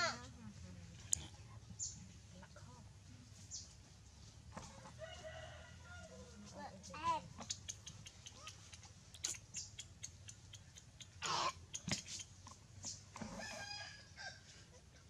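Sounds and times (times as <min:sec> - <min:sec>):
chickens clucking: 0:07.4 - 0:13.7.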